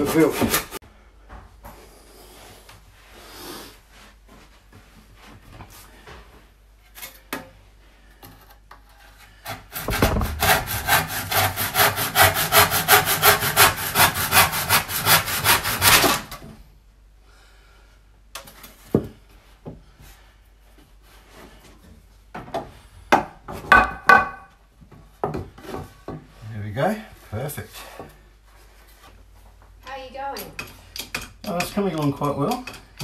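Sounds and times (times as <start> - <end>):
handsaw cutting wood: 0.0 - 0.8, 9.4 - 16.3
faint knocks and scrapes: 3.9 - 11.0, 24.8 - 26.6.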